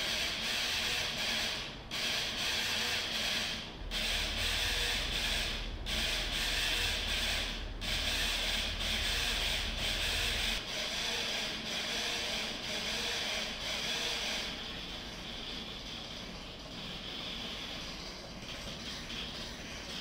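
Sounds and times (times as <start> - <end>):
small motors whirring: 0.0 - 15.7
low rumble: 3.8 - 10.6.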